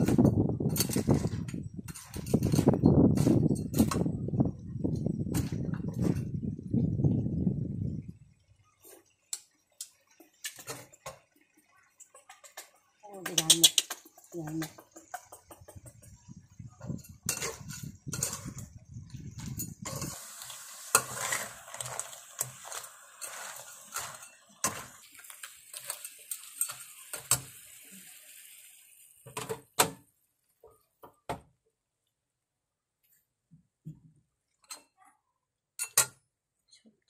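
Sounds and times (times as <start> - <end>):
spatula scraping a wok: 0.0 - 4.2, 12.0 - 28.6
steady sizzle: 0.0 - 31.0.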